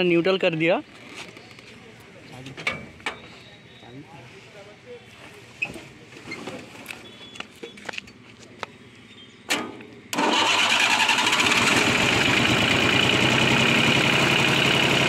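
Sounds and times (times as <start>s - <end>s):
diesel engine running: 10.0s - 15.0s
starter motor cranking: 10.1s - 15.0s.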